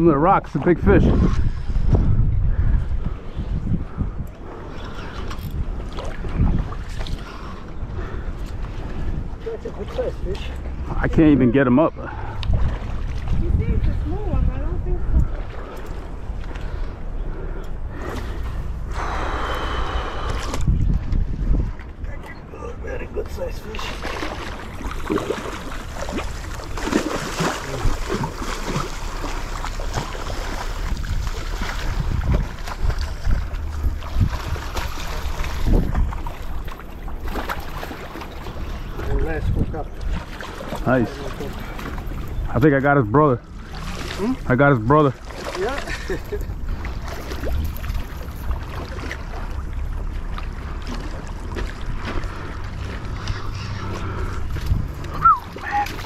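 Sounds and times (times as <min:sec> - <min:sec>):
wind rumble on microphone: 0:00.6 - 0:11.2, 0:12.1 - 0:22.5, 0:27.6 - 0:37.4, 0:38.5 - 0:41.2, 0:45.9 - 0:56.0
fish splashing at the surface: 0:23.7 - 0:39.1, 0:45.2 - 0:56.0.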